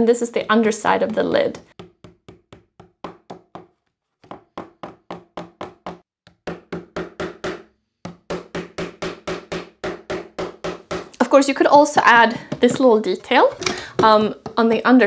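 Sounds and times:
hammer tapping nails into wood: 1.8 - 3.7, 4.3 - 11.2.

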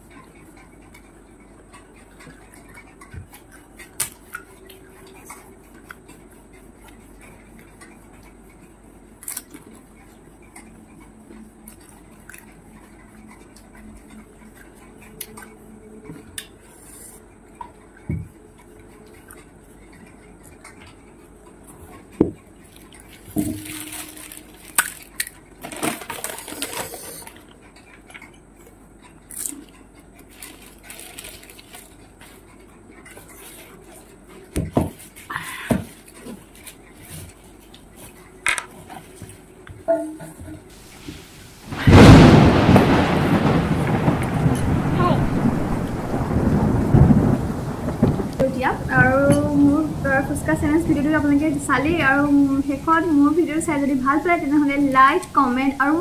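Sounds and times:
crunching and chewing: 0.1 - 39.6.

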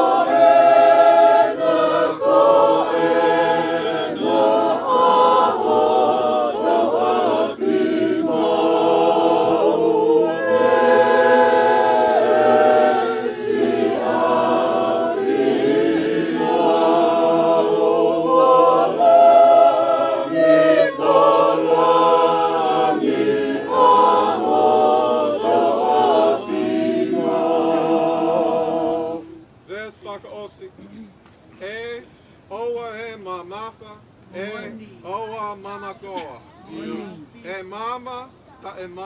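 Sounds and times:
choir singing a hymn unaccompanied: 0.0 - 29.4, 36.7 - 37.3.

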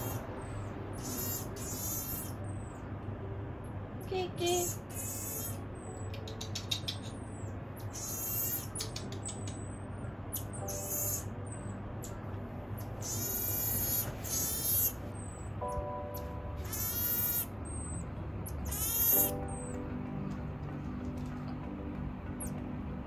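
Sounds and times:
marmoset high-pitched shrill calls: 0.0 - 2.8, 4.6 - 12.2, 12.8 - 19.8.

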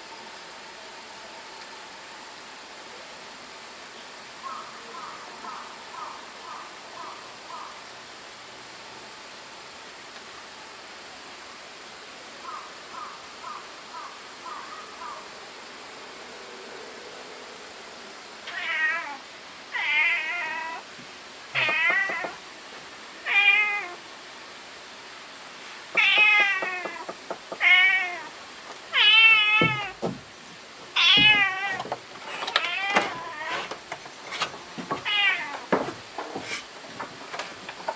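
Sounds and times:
cat meowing: 18.5 - 20.8, 21.5 - 22.4, 23.2 - 24.0, 26.0 - 28.3, 28.9 - 30.0, 31.0 - 31.9, 32.5 - 33.8, 34.9 - 35.7.

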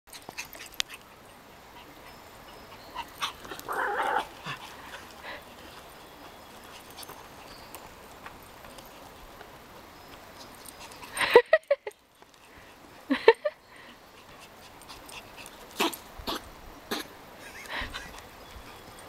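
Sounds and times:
footsteps on dirt trail: 3.3 - 11.0.

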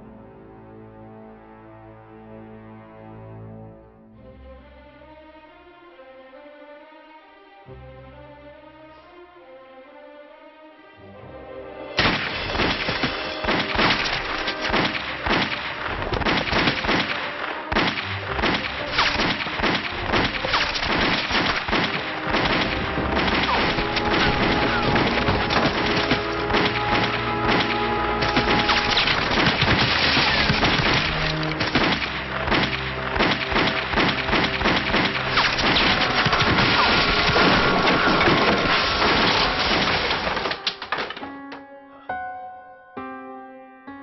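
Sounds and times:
dramatic film score: 0.0 - 43.2
rapid gunshots: 12.0 - 40.7
bullet impacts: 12.0 - 41.2.

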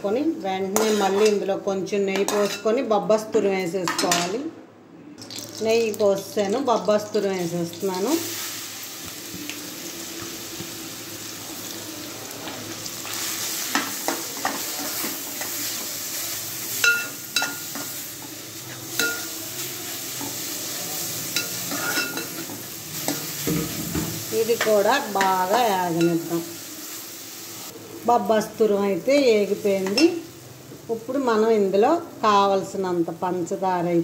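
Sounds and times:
spoon scraping and clinking pan: 2.3 - 2.7, 16.7 - 18.0, 18.9 - 19.3, 21.4 - 23.3
food sizzling in a pan: 5.2 - 34.0.

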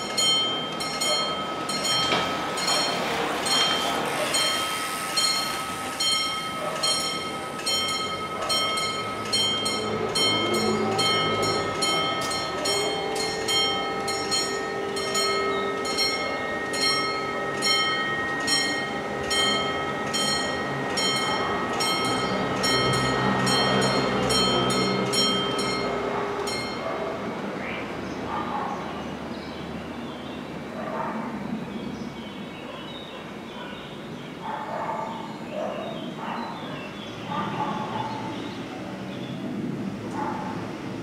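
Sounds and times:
level crossing warning bells: 0.0 - 28.0.

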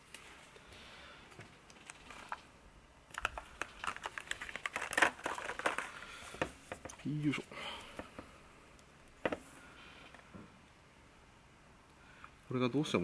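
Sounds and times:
plastic blister pack clicking: 3.1 - 7.0.

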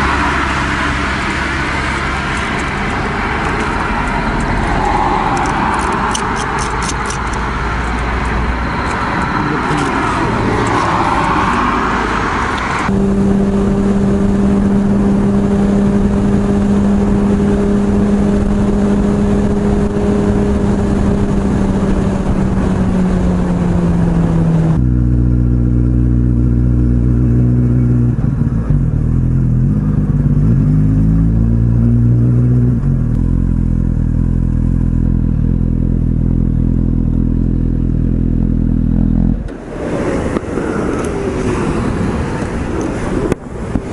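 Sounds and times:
motorcycle engine running: 12.9 - 39.5.

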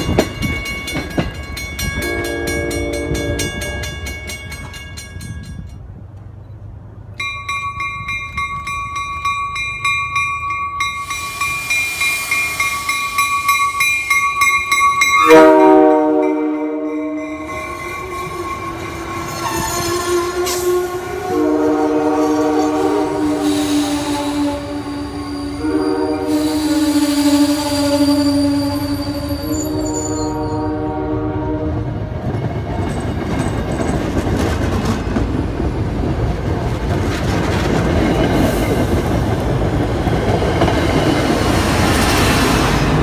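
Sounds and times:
railroad crossing bell ringing: 0.0 - 21.6, 22.2 - 31.1
train coaches rolling past: 0.0 - 43.0
train horn blast: 2.0 - 4.2, 15.2 - 32.1.

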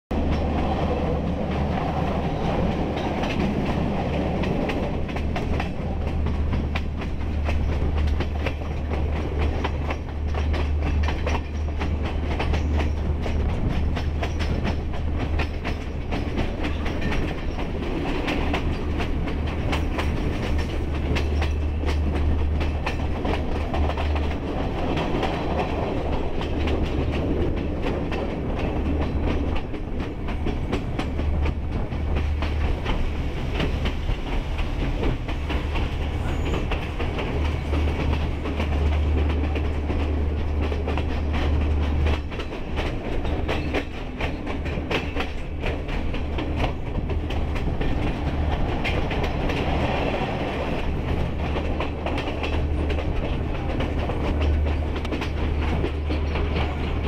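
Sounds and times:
train rumble: 0.1 - 57.0.

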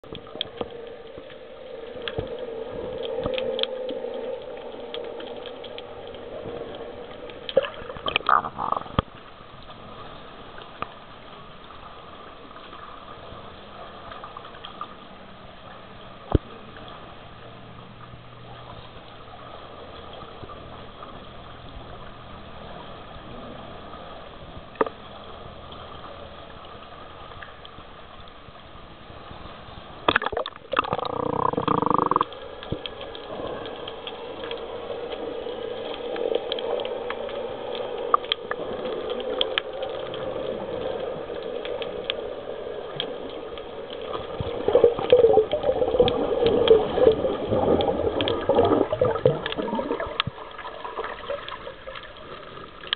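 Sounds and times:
underwater gurgling and bubbling: 0.0 - 15.1, 28.5 - 52.9
water rush: 0.0 - 52.9
underwater clicks: 0.1 - 9.2, 30.1 - 42.3, 42.9 - 52.9.

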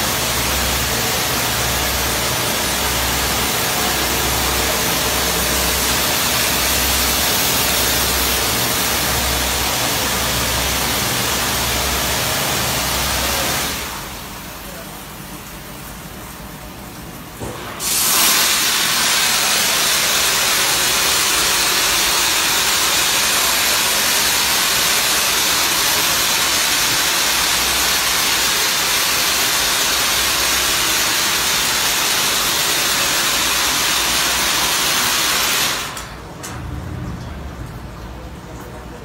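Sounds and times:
spray jets hissing: 0.0 - 14.1, 17.8 - 36.2.

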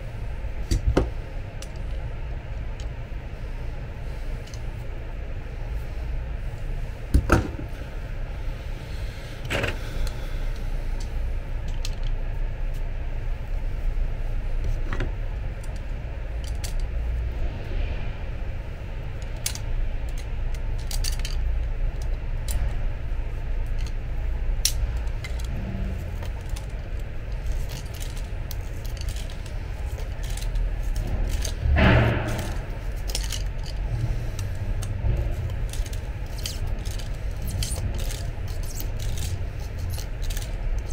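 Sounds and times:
steady low rumble: 0.0 - 40.9
pliers clicking on metal: 32.2 - 40.9
pliers scraping metal gear: 34.4 - 40.9.

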